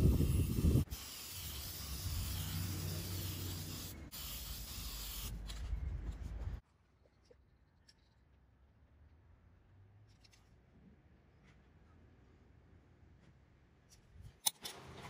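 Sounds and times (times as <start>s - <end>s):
spray paint can hissing: 0.0s - 5.4s.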